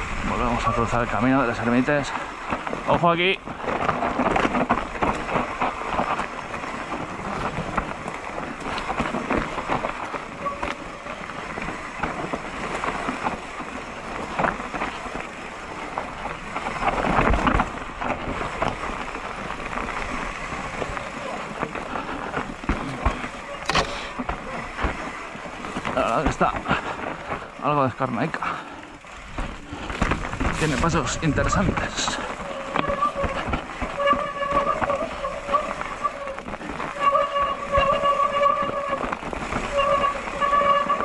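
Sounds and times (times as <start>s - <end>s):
bike rattling and knocking: 0.0s - 41.0s
bike tyres rolling over dirt and stones: 0.0s - 41.0s.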